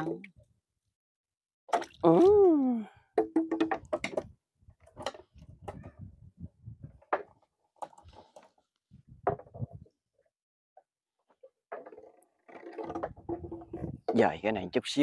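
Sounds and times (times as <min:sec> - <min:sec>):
person vocalizing: 0:02.0 - 0:03.0
person humming: 0:02.1 - 0:03.0.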